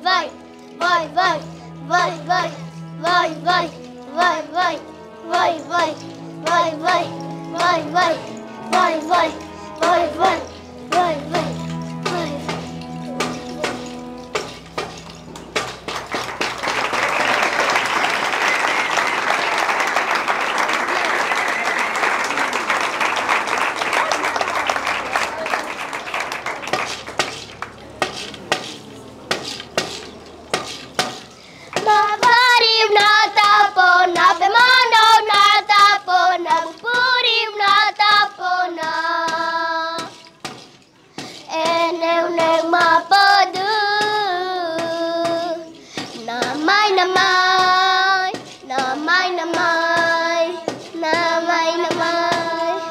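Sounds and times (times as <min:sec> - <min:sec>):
children singing in unison: 0:00.0 - 0:15.3, 0:31.8 - 0:40.4, 0:41.2 - 0:52.9
audience applauding: 0:15.4 - 0:28.3.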